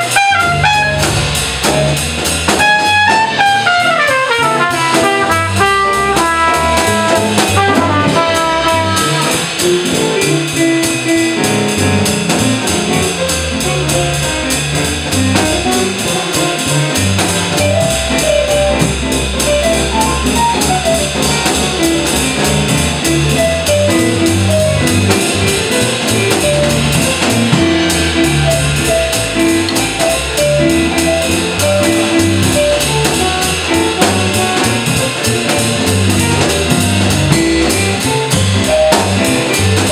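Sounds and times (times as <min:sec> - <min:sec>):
trumpet phrase: 0:00.0 - 0:01.0, 0:02.6 - 0:09.5
drum kit ride cymbal: 0:00.0 - 0:39.9
walking upright bass: 0:00.0 - 0:39.9.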